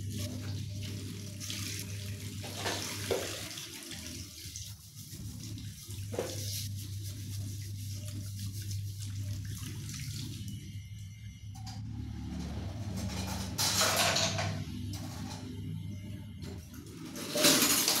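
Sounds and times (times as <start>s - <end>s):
tap water running into sink: 0.0s - 6.6s.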